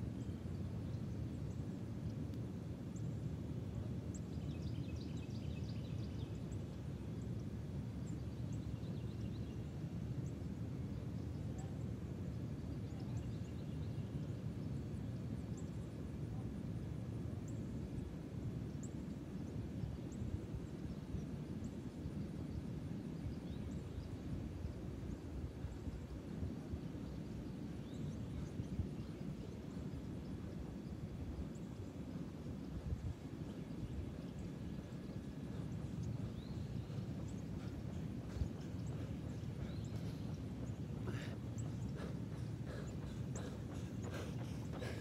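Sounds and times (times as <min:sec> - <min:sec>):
steady low rumble: 0:25.5 - 0:45.0
birds twittering: 0:26.8 - 0:45.0.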